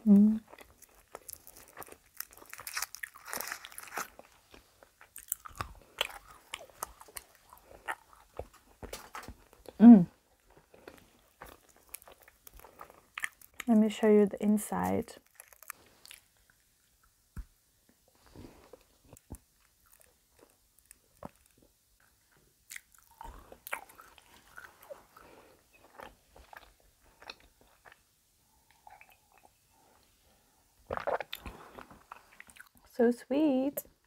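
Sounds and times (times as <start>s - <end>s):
chewing chocolate: 0.4s - 9.8s, 10.4s - 13.8s, 15.1s - 17.1s, 18.7s - 28.0s, 28.6s - 29.6s, 30.9s - 32.9s.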